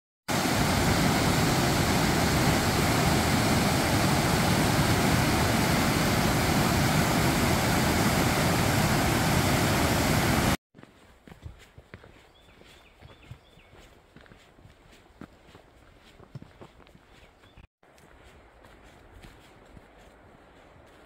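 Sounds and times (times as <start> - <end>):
flowing water rushing: 0.3 - 10.6.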